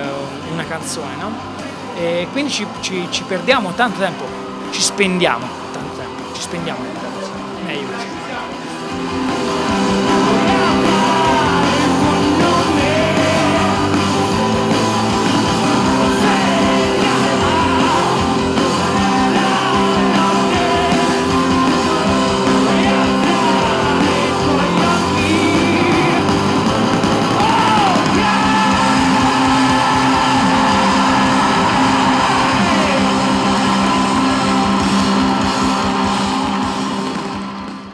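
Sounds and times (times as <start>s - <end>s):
live rock band playing: 0.0s - 37.9s
lead singer: 9.3s - 36.8s.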